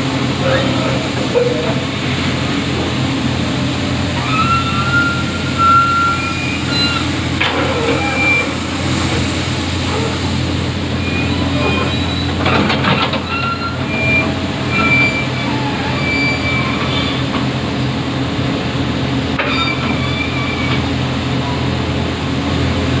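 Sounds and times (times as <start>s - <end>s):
excavator diesel engine running: 0.0s - 23.0s
high-pitched squeals: 4.0s - 17.3s, 19.4s - 21.0s.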